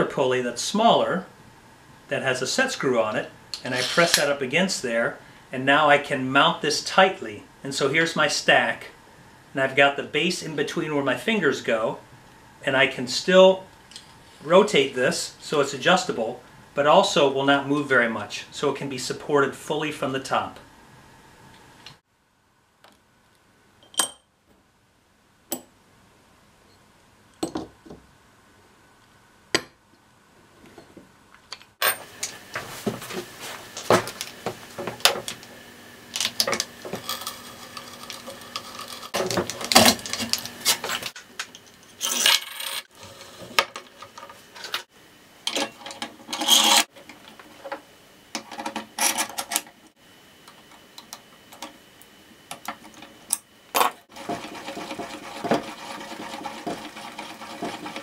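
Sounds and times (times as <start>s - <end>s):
metal parts clinking on wood: 36.2s - 42.8s, 45.5s - 46.8s
hand brace boring into wood: 54.1s - 58.0s.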